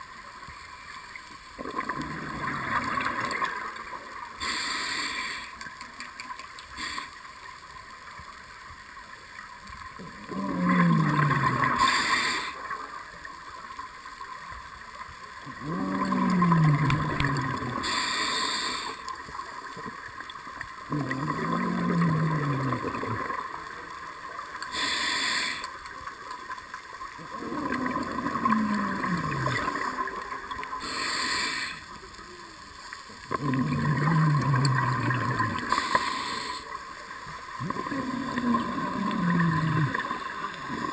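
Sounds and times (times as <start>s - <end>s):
exhaled bubbles gurgling: 0.0s - 7.1s, 9.7s - 14.4s, 15.2s - 40.9s
regulator inhale hiss: 4.4s - 5.7s, 6.7s - 7.4s, 11.7s - 12.8s, 17.8s - 19.2s, 24.6s - 25.8s, 30.8s - 32.0s, 35.6s - 36.8s.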